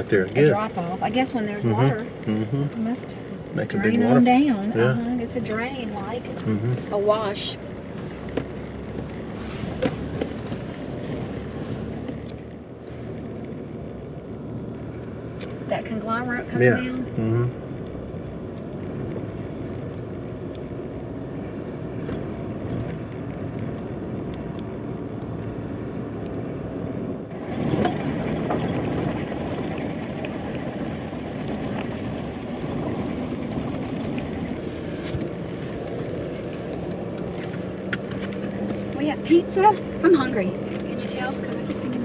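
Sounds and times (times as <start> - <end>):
truck engine and tyre noise: 0.0 - 42.0.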